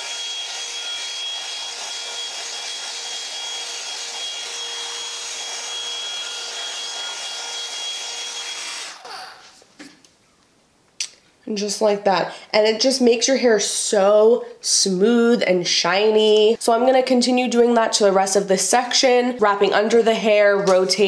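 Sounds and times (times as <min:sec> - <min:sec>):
hair dryer brush whining: 0:00.0 - 0:09.6.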